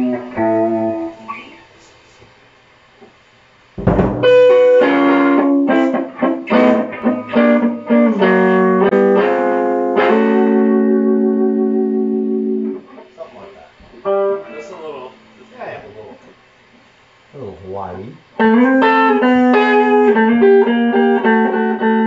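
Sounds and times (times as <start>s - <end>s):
electric guitar blues lead: 0.0s - 1.7s, 3.8s - 13.0s, 14.0s - 14.6s, 18.4s - 22.0s.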